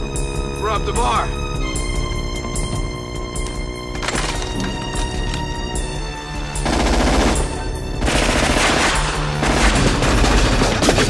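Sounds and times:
background music: 0:00.0 - 0:11.0
submachine gun automatic bursts: 0:06.6 - 0:11.0.

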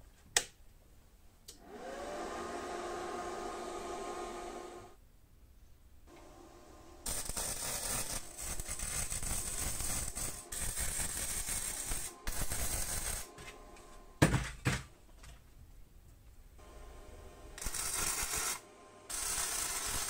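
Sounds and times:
welding arc crackling: 0:07.0 - 0:13.4, 0:17.6 - 0:20.0.

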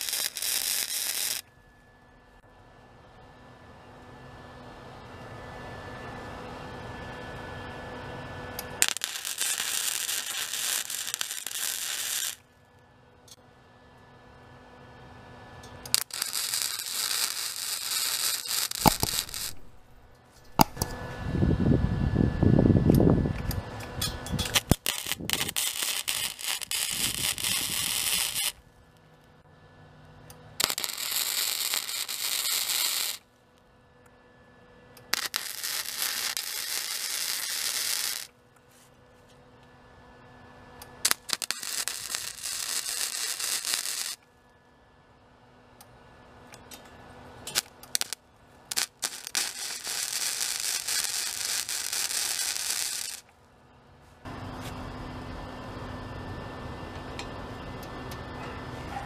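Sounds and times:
welder arc crackling and hissing: 0:00.0 - 0:01.5, 0:08.8 - 0:12.4, 0:15.9 - 0:21.1, 0:24.4 - 0:28.6, 0:30.6 - 0:33.3, 0:35.0 - 0:38.3, 0:41.0 - 0:44.2, 0:47.5 - 0:53.3.

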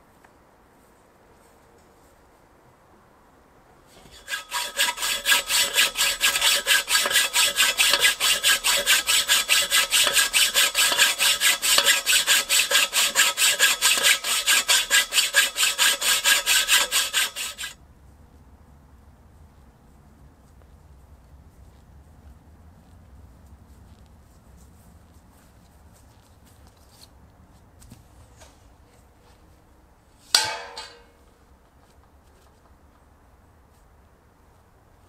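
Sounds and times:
hacksaw cutting metal: 0:04.0 - 0:17.8, 0:30.3 - 0:31.1.

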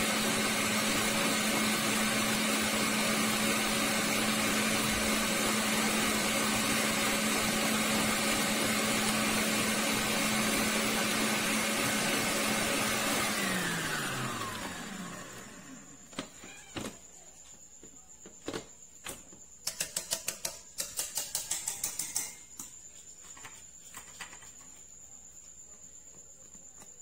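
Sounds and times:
stand mixer whisking: 0:00.0 - 0:15.8.

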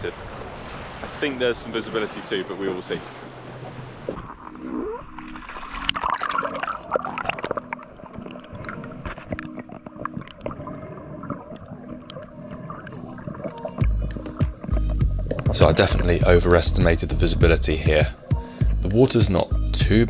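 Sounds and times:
underwater gurgling: 0:03.3 - 0:16.9
small underwater clicks: 0:04.1 - 0:15.5.

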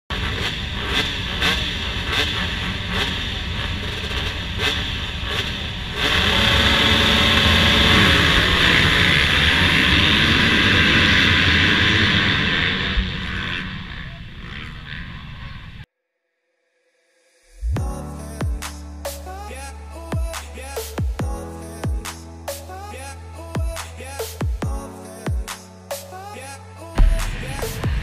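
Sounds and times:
motocross bikes revving: 0:00.1 - 0:15.8, 0:27.0 - 0:28.0
many bikes at full throttle: 0:00.1 - 0:15.9.

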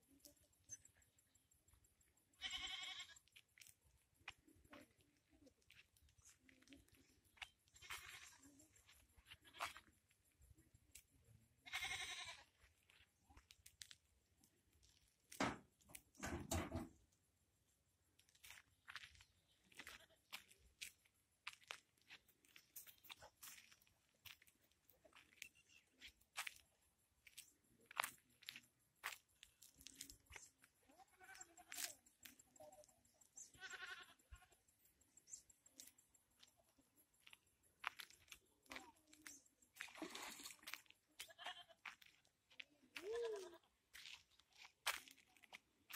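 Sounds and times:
animal bleat-like cry: 0:02.4 - 0:03.3, 0:09.3 - 0:09.8, 0:11.6 - 0:12.6, 0:31.0 - 0:31.9, 0:33.4 - 0:34.6, 0:41.2 - 0:42.0, 0:43.0 - 0:43.7
footsteps on dirt path: 0:02.9 - 0:11.0, 0:18.2 - 0:32.4, 0:35.2 - 0:45.9.

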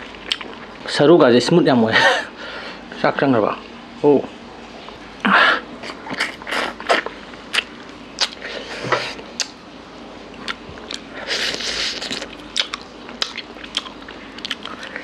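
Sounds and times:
chewing with wet smacking: 0:00.0 - 0:00.9, 0:05.8 - 0:08.5, 0:10.3 - 0:15.0.

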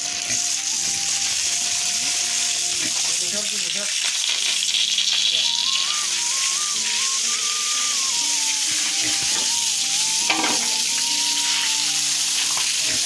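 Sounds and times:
hose spraying onto concrete: 0:00.0 - 0:13.0.

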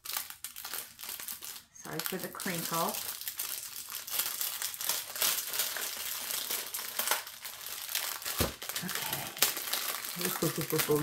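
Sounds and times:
plastic packets crinkling: 0:00.0 - 0:11.0.

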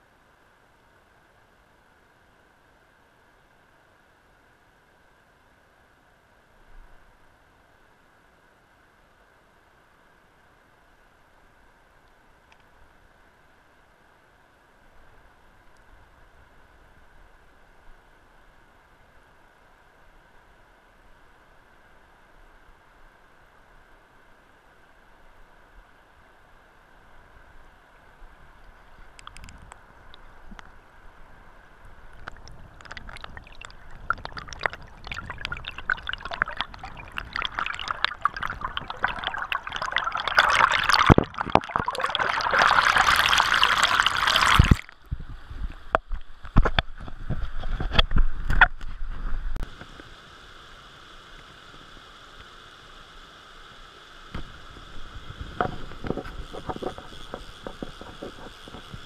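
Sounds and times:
soft water hiss: 0:00.0 - 0:59.0
muffled rushing water underwater: 0:26.6 - 0:59.0.

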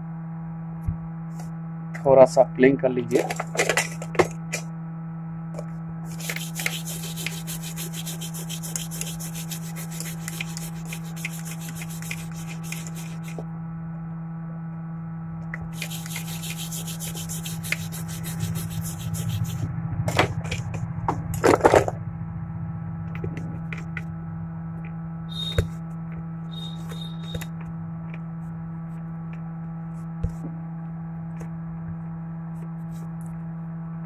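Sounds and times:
electrical hum: 0:00.0 - 0:34.0
metal pick and brush scraping: 0:06.1 - 0:13.4, 0:15.7 - 0:20.8, 0:25.3 - 0:25.8, 0:26.5 - 0:27.5.

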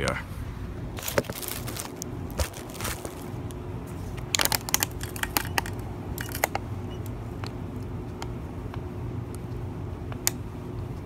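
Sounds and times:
handling clicks and knocks: 0:04.2 - 0:06.7.

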